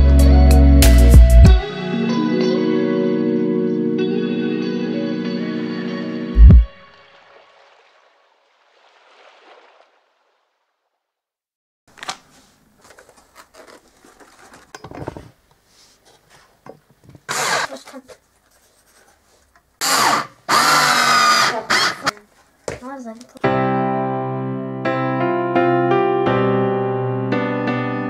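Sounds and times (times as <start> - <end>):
cordless drill whirring: 17.3 - 17.7, 19.8 - 22.2.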